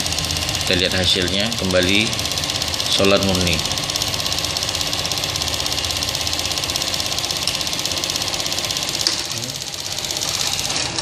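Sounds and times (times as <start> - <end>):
small pump running: 0.0 - 11.0.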